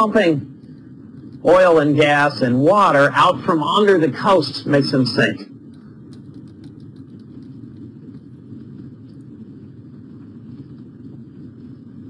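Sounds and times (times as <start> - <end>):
low room rumble: 0.0 - 12.0
stylus tapping on screen: 5.7 - 9.3.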